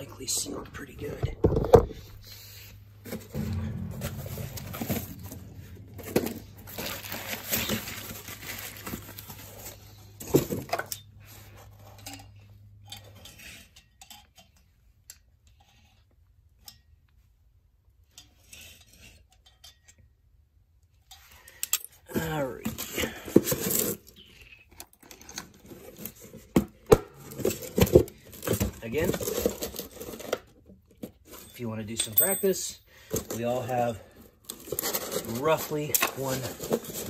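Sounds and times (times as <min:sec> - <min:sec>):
steady low hum: 0:01.3 - 0:08.0
metal tools clinking: 0:31.3 - 0:33.0.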